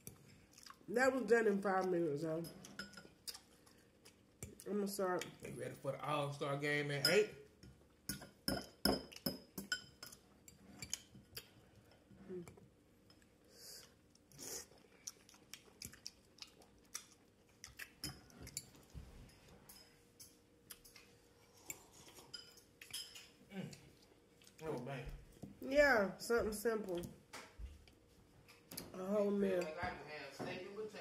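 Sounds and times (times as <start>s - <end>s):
chewing vegetables: 0.0s - 0.9s, 2.6s - 5.5s, 10.5s - 19.5s, 23.6s - 25.4s.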